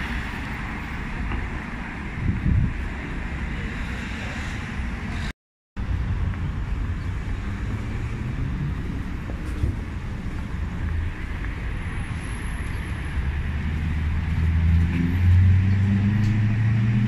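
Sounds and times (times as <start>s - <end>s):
traffic hum: 0.0s - 17.0s
wind on microphone: 2.0s - 5.3s, 5.9s - 11.3s.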